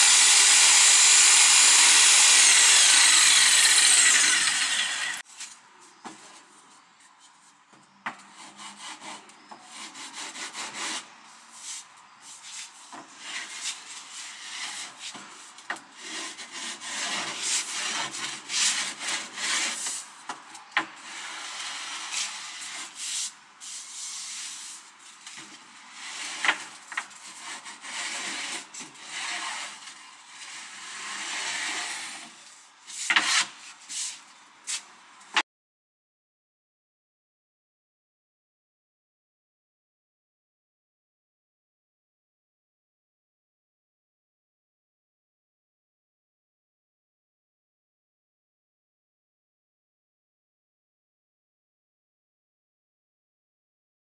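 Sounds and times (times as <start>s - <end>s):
jigsaw cutting: 0.0s - 5.2s
sanding block scraping: 0.0s - 5.2s, 8.2s - 15.4s, 16.0s - 20.1s, 21.0s - 24.9s, 25.8s - 34.9s.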